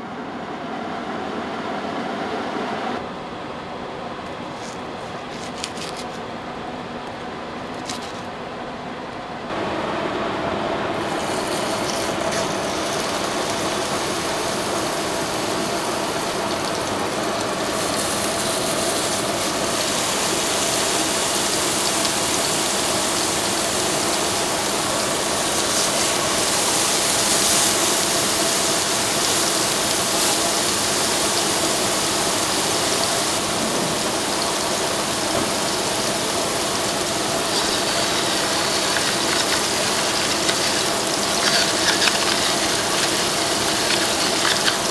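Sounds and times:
burger patties sizzling in oil: 0:11.0 - 0:44.9
spatula scraping a pan: 0:37.4 - 0:44.9.

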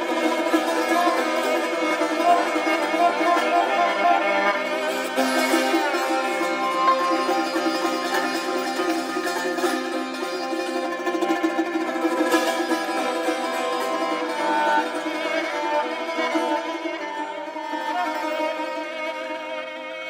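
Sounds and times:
spike fiddle bowing held notes: 0:00.0 - 0:09.4
plucked lute tremolo: 0:00.0 - 0:20.0.

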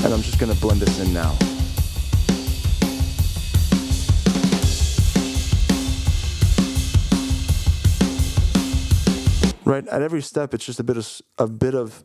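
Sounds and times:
fast punk drum beat: 0:00.0 - 0:09.6.

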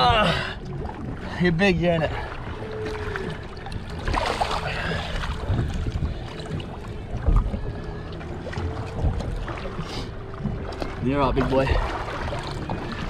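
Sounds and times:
water slapping against boat: 0:00.0 - 0:13.0
wind buffeting microphone: 0:00.0 - 0:13.0.

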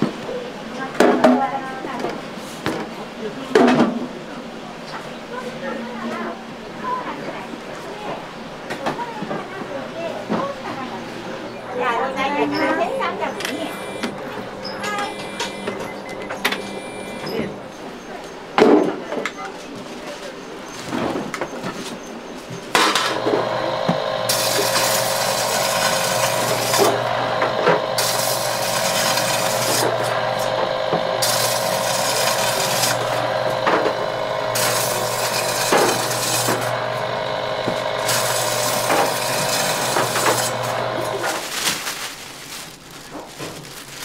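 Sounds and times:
bread slicer motor hum: 0:11.2 - 0:17.8, 0:22.8 - 0:41.4
blade rasping through bread: 0:23.2 - 0:41.4.

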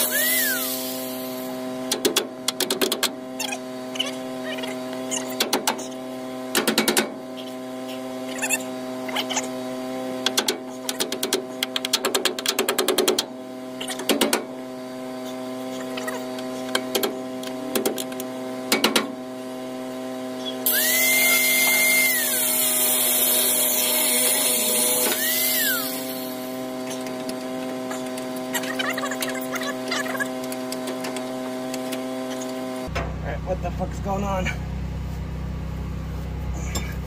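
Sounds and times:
angle grinder cutting metal: 0:00.0 - 0:01.7, 0:20.6 - 0:32.6
steady hum: 0:00.0 - 0:03.0, 0:32.8 - 0:37.0.

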